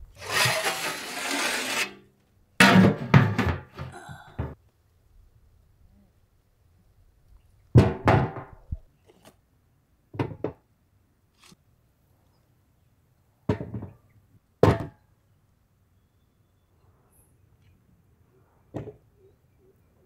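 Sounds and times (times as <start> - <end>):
metal pot knocks and thunks: 2.6 - 4.6.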